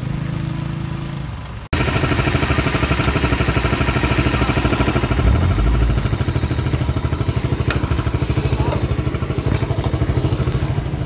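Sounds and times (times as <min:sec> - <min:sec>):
engine running with fast pulsing: 0:01.8 - 0:11.0
low rumble: 0:04.8 - 0:07.5.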